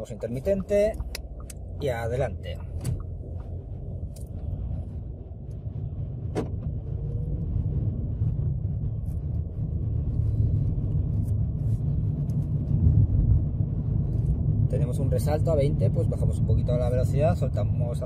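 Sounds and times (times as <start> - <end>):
car engine and road rumble: 0.0 - 18.0.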